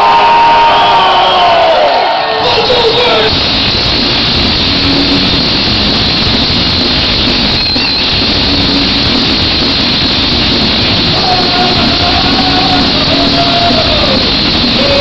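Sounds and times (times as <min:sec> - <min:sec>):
arena crowd: 0:00.0 - 0:03.3
punk band playing live: 0:02.6 - 0:15.0.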